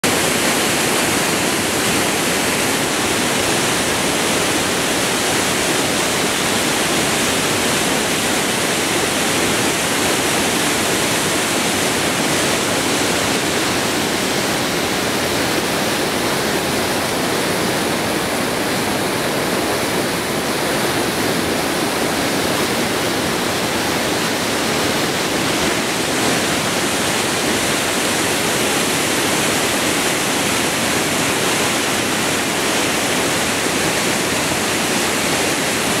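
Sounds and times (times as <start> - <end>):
river water rushing: 0.0 - 36.0.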